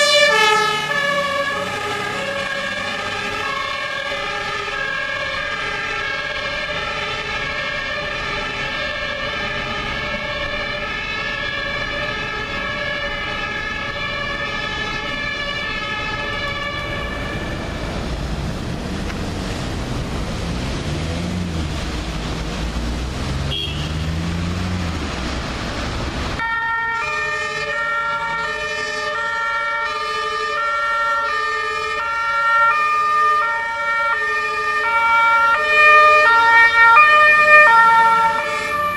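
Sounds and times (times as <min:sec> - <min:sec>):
traffic noise: 0:00.0 - 0:38.9
two-tone sirens: 0:00.0 - 0:38.9
heavy vehicle engine revving: 0:00.1 - 0:13.0, 0:14.0 - 0:26.4.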